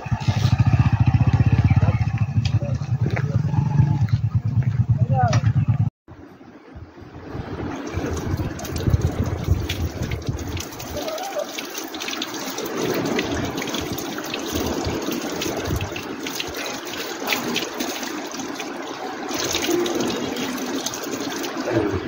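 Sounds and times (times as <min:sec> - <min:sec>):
water splashing on concrete: 0:07.6 - 0:22.0
water running from a tap: 0:07.8 - 0:22.0.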